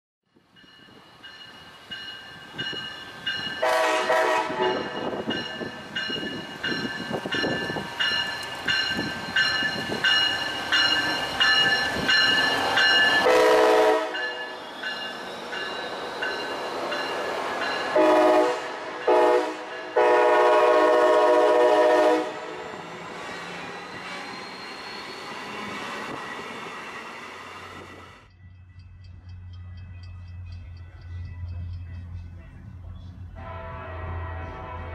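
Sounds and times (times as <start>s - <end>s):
train passing: 0.3s - 34.9s
train air horn blasts: 3.6s - 5.2s, 13.2s - 14.5s, 17.9s - 22.6s, 33.4s - 34.9s
bell ringing: 4.7s - 13.3s, 14.2s - 18.0s.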